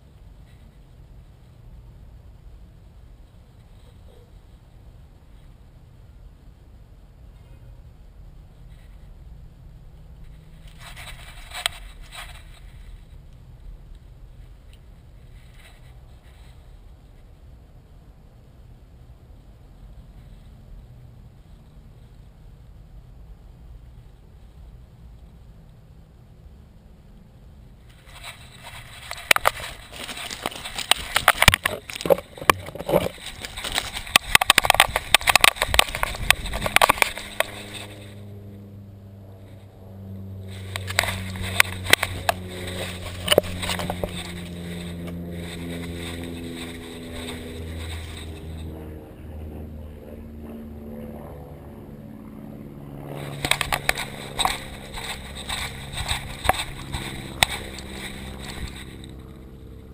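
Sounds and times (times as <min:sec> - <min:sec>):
low engine drone: 0:19.7 - 0:59.9
crunching on gravel and dry grass: 0:27.9 - 0:38.2, 0:40.5 - 0:48.7, 0:53.1 - 0:59.2.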